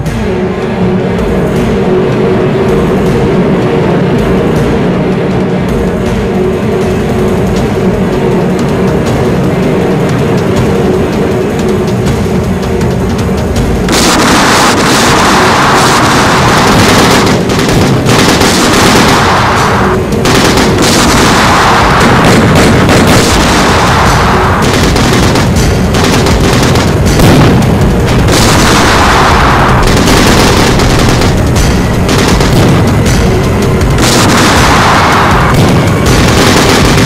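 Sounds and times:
dramatic music: 0.0s - 37.0s
explosion booms: 13.9s - 33.4s, 34.0s - 37.0s
rapid gunfire: 13.9s - 37.0s.

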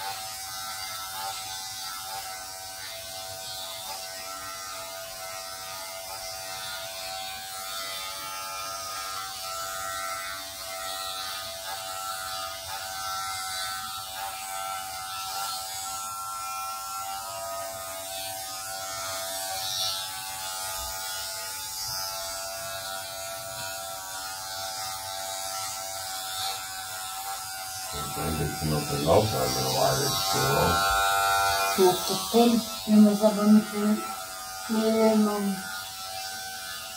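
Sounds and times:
electric shaver buzzing: 0.0s - 36.9s.

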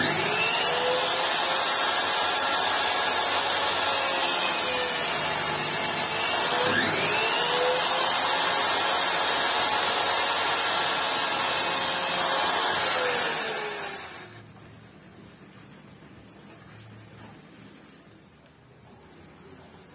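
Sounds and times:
miter saw cutting wood: 0.0s - 14.4s.

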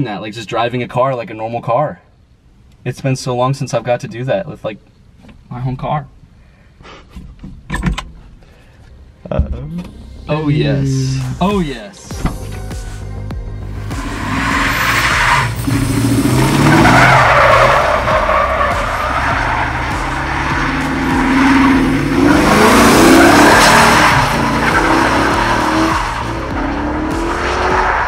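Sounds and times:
car engine revving: 12.1s - 28.0s
tires sliding on gravel: 14.0s - 28.0s.

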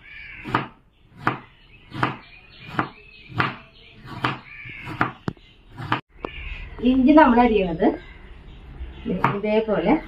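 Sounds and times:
knife chopping carrot on board: 0.4s - 5.2s.

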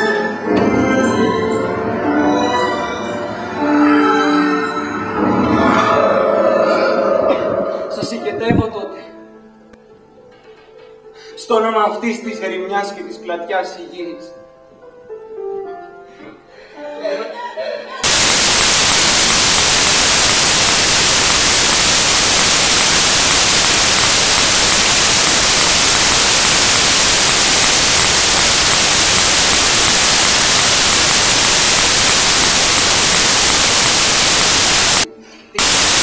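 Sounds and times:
white-noise hiss: 18.0s - 36.0s.

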